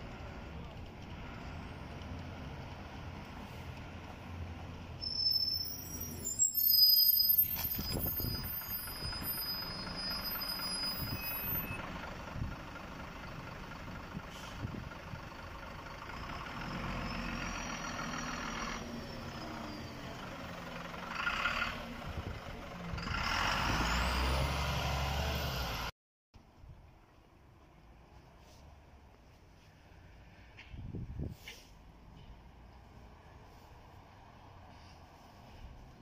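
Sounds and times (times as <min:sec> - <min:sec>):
bus engine running: 0:00.0 - 0:06.5, 0:07.3 - 0:25.9
air brake hiss: 0:14.3 - 0:14.7, 0:31.2 - 0:31.8.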